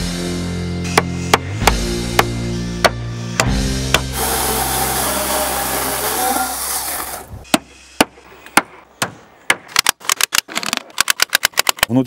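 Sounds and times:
chainsaw cutting timber: 0:03.4 - 0:07.3.

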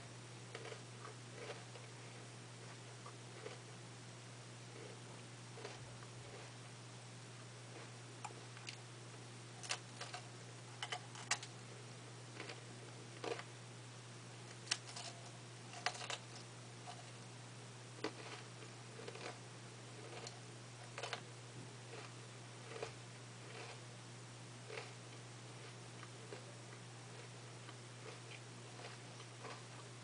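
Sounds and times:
steady low hum: 0:00.0 - 0:30.0
chewing crisp cone: 0:00.5 - 0:02.0, 0:02.7 - 0:03.7, 0:05.6 - 0:06.6, 0:13.2 - 0:13.5, 0:14.5 - 0:17.2, 0:18.0 - 0:19.4, 0:20.0 - 0:21.2, 0:21.9 - 0:23.8, 0:24.6 - 0:30.0.

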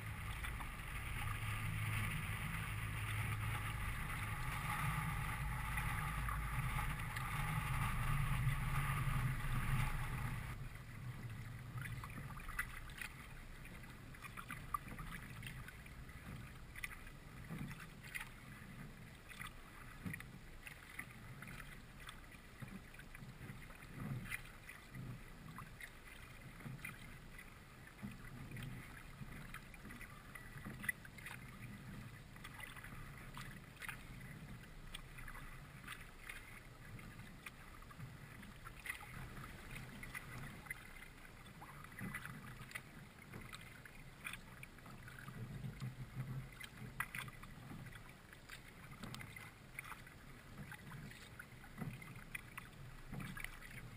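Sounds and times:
paddle splashing and dripping: 0:00.0 - 0:53.9
water lapping at hull: 0:00.0 - 0:53.9
wind rumble on microphone: 0:00.0 - 0:53.9.

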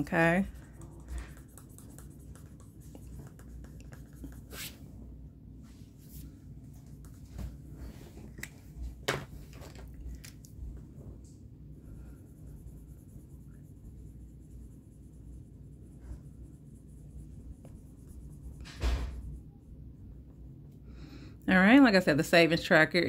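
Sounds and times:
marker scratching on paper: 0:00.0 - 0:04.9, 0:11.8 - 0:19.7.

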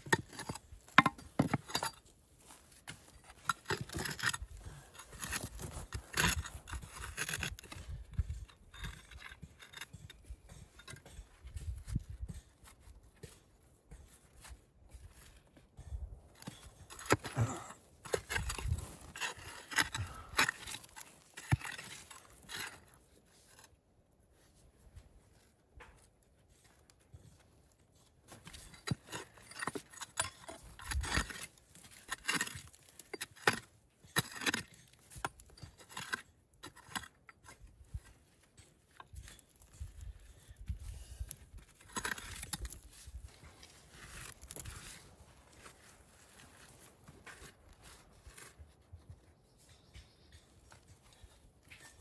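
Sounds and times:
hand tool scraping clay: 0:00.0 - 0:24.8, 0:26.1 - 0:52.0
metallic clinks against stone: 0:08.3 - 0:12.6.

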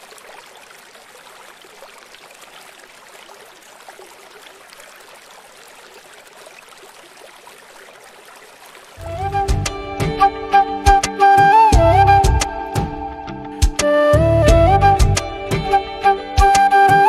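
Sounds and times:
flowing water rushing: 0:00.0 - 0:17.0.

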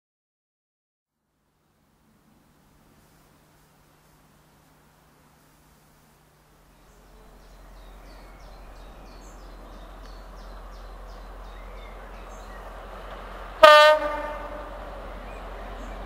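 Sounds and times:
diesel locomotive approaching: 0:01.8 - 0:16.0
birds chirping: 0:06.6 - 0:16.0
locomotive horn blast: 0:13.6 - 0:15.3.

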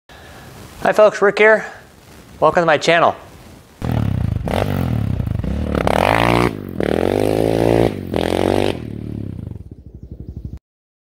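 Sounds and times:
atv engine accelerating: 0:03.8 - 0:10.6.

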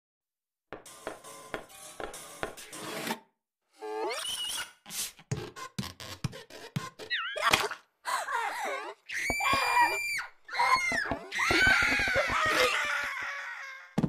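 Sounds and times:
cartoon voices screaming: 0:09.1 - 0:14.0.

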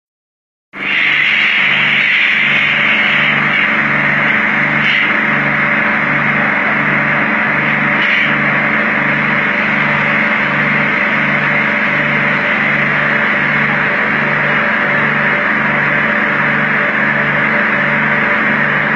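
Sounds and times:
high-pressure water jets spraying: 0:00.8 - 0:05.4, 0:06.8 - 0:14.5
low pulsing machine hum: 0:00.8 - 0:18.9.

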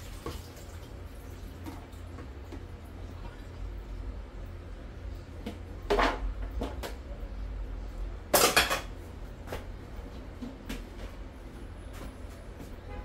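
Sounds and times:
steady low hum: 0:00.7 - 0:13.0
dishes clattering at sink: 0:05.4 - 0:07.0, 0:08.3 - 0:09.0.

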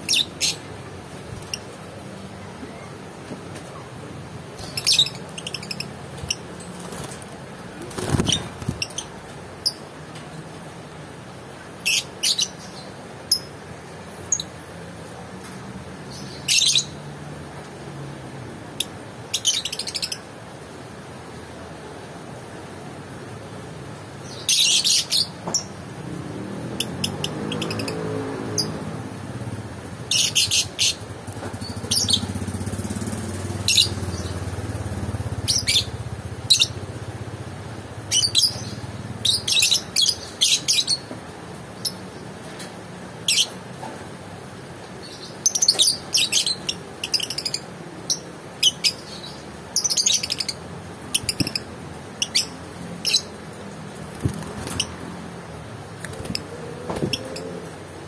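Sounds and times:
lovebirds chirping: 0:00.0 - 0:00.7, 0:04.6 - 0:09.8, 0:45.0 - 0:53.6.

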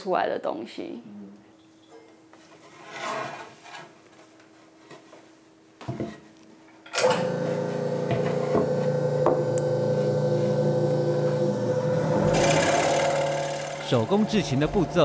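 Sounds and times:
scroll saw running: 0:07.2 - 0:15.0.

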